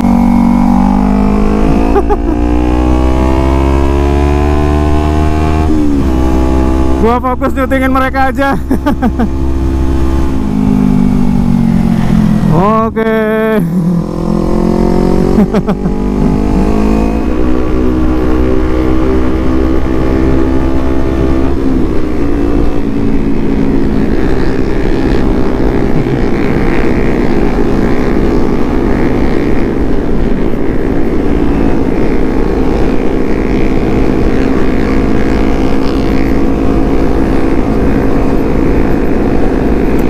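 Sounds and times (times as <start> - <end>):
motorcycle engine cruising: 0.0 - 40.0
wind noise on microphone: 16.0 - 40.0.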